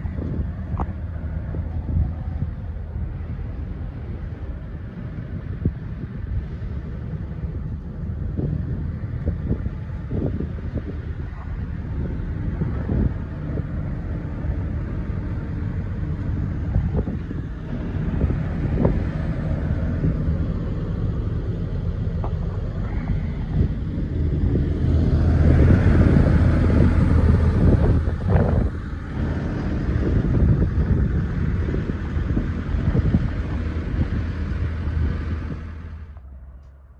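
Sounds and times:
wind on microphone: 0:00.0 - 0:36.2
excavator diesel engine idling: 0:00.0 - 0:36.9.

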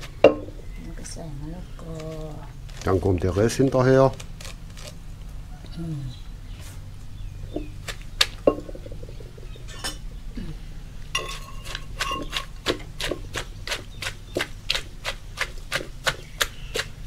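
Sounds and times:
wooden pestle pounding in mortar: 0:11.4 - 0:17.0.

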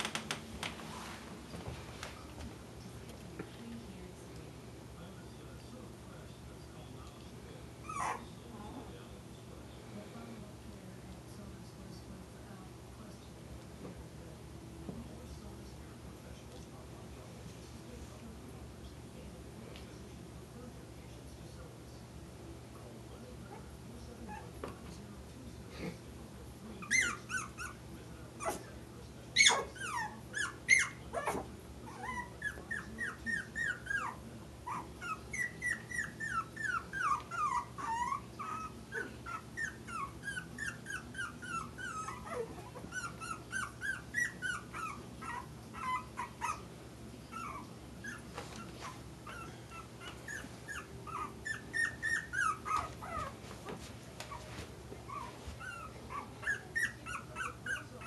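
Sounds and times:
puppies yipping and whining: 0:07.8 - 0:08.2, 0:26.9 - 0:27.8, 0:29.4 - 0:46.6, 0:47.3 - 0:53.4, 0:55.1 - 0:58.0
puppy yelps: 0:07.9 - 0:08.2, 0:29.4 - 0:32.4.

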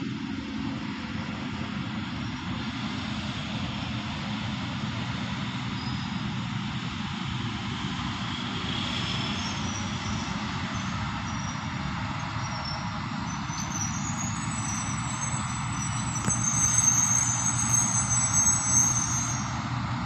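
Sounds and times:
locomotive diesel engine droning: 0:00.0 - 0:20.0
high-pitched metallic squealing: 0:09.2 - 0:19.7.

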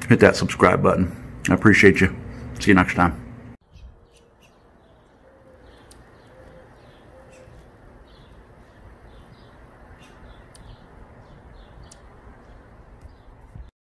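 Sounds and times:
small birds chirping: 0:03.6 - 0:13.7
dove cooing: 0:04.1 - 0:08.5.

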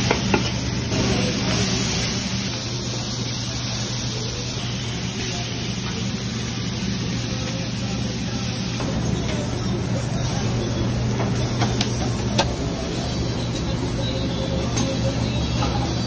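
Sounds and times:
meat sizzling on a griddle: 0:00.0 - 0:11.8
low mechanical hum: 0:00.0 - 0:16.0.

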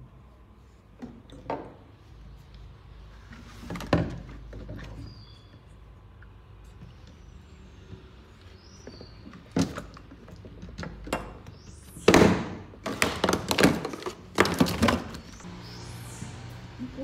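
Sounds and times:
plastic bottles clattering on wood: 0:08.8 - 0:11.5, 0:12.1 - 0:15.3.

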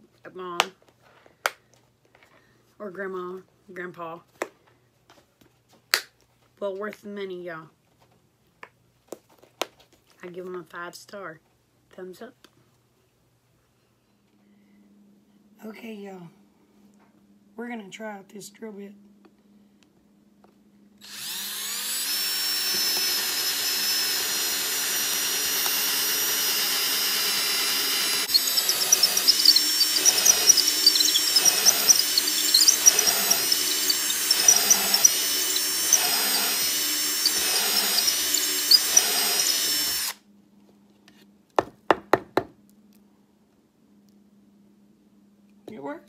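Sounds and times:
electric drill whining: 0:21.0 - 0:40.2.

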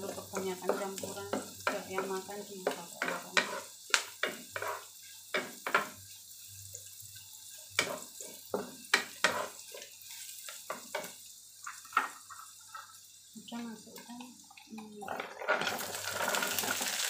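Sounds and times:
wooden spatula scraping a wok: 0:00.0 - 0:06.0, 0:07.8 - 0:11.1, 0:11.7 - 0:13.0, 0:15.2 - 0:17.0
food sizzling in hot oil: 0:00.0 - 0:17.0.

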